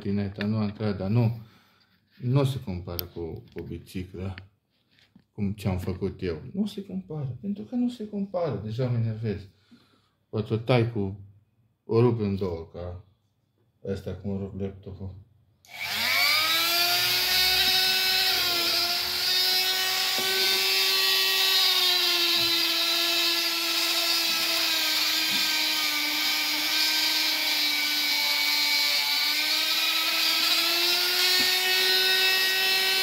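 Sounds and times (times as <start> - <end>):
rotary tool grinding metal: 15.7 - 33.0.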